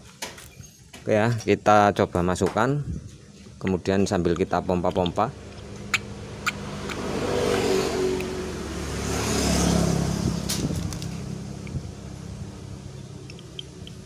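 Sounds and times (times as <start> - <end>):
road noise: 0.0 - 14.0
vehicle engine hum: 3.0 - 14.0.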